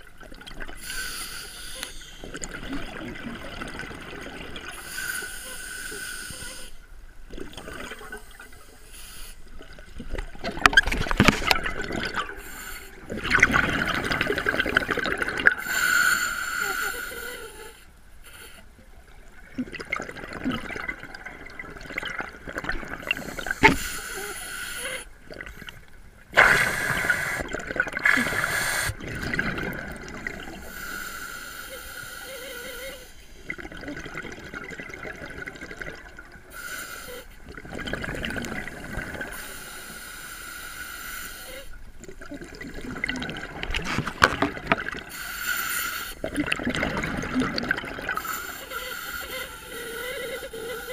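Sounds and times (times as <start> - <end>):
diver exhaling bubbles: 26.4 - 30.9, 46.2 - 49.4.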